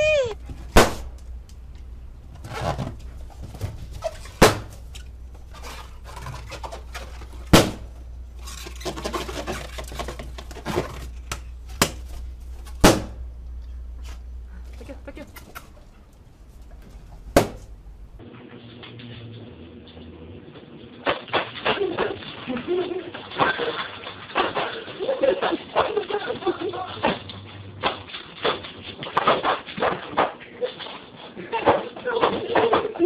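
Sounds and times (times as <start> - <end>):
balloons popping: 17.3 - 17.8.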